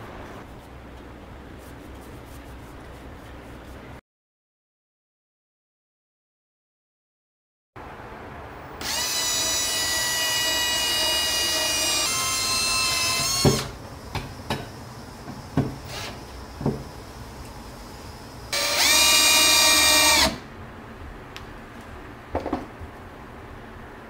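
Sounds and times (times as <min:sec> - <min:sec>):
cordless drill driving screws: 0:08.8 - 0:13.7, 0:15.8 - 0:16.3, 0:18.5 - 0:20.4.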